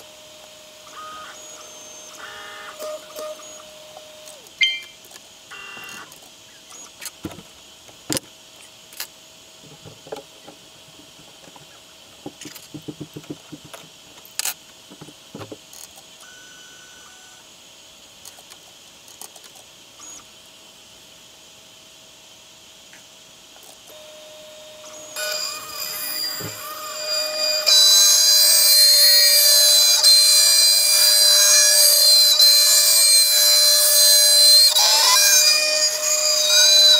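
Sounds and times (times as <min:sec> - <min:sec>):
stepper motors whining: 0:00.0 - 0:07.4, 0:23.9 - 0:36.9.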